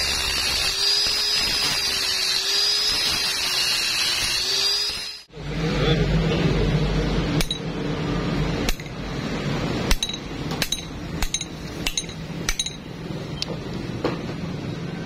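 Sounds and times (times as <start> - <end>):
hammer striking steel bar: 7.4 - 7.7, 8.6 - 8.9, 9.9 - 12.9.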